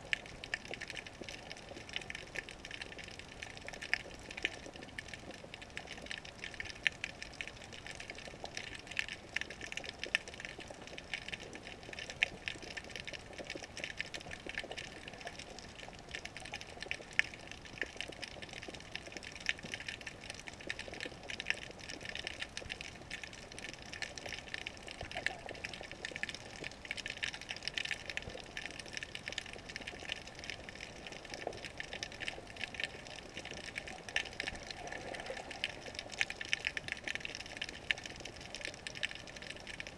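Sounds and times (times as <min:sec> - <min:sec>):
underwater crackle of clicks: 0:00.0 - 0:39.9
faint hiss: 0:22.9 - 0:39.9.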